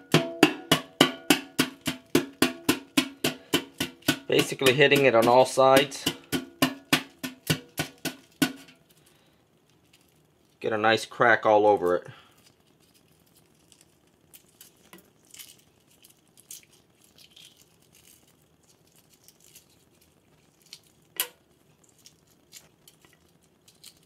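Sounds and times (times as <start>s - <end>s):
shell flakes dropping into sink: 0.7s - 8.9s
eggshell crackling while peeled: 1.3s - 24.0s.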